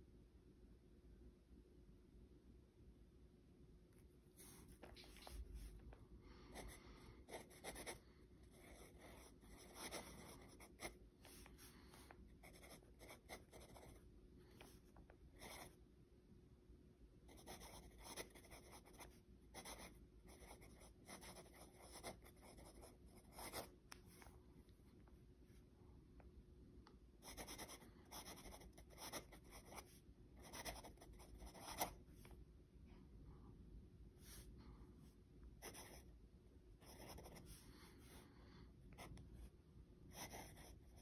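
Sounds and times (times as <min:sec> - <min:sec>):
pen nib scratching on paper: 0:07.3 - 0:14.0.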